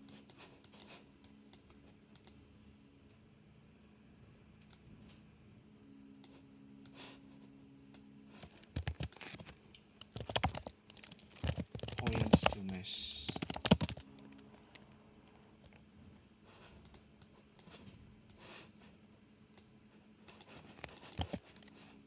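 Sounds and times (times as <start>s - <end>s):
computer mouse clicks: 0.0s - 2.4s, 7.9s - 12.7s, 13.3s - 14.9s, 16.8s - 18.5s, 19.6s - 21.8s
faint low hum: 0.0s - 22.0s
keyboard typing: 8.4s - 14.9s, 20.3s - 21.7s.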